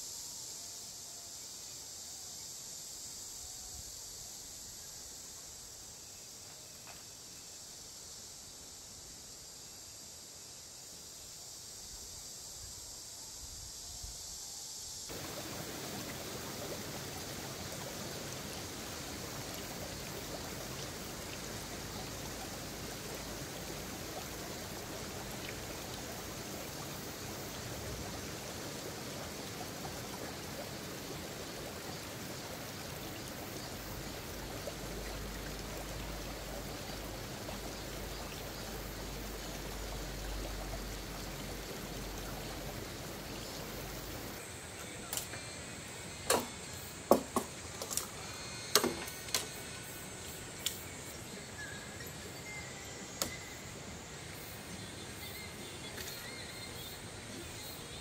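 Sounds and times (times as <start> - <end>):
stream flowing over boulders: 15.1 - 58.0.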